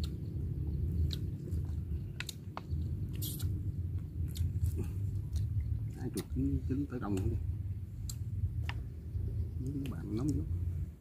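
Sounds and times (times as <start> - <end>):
chewing and biting food: 0.0 - 6.4
steady low rumble: 0.0 - 11.0.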